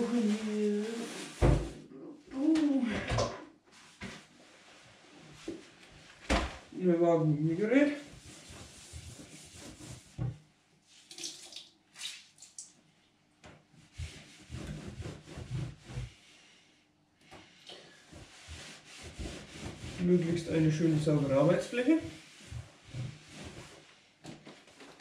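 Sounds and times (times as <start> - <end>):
cloth scrubbing a worktop: 0.0 - 1.8, 3.7 - 6.2, 7.4 - 11.1, 13.7 - 16.6, 17.8 - 25.0.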